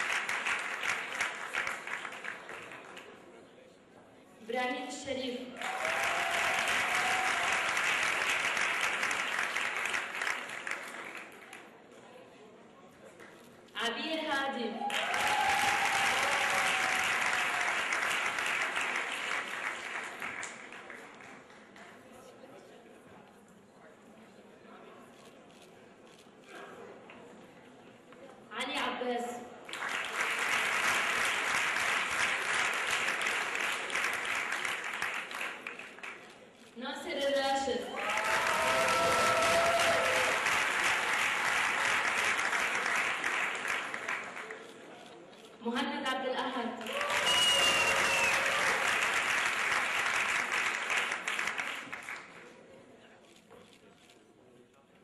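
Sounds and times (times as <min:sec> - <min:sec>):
audience applauding: 0:00.0 - 0:03.1, 0:05.6 - 0:11.7, 0:14.8 - 0:21.8, 0:29.7 - 0:36.4, 0:37.9 - 0:44.8, 0:46.8 - 0:52.5.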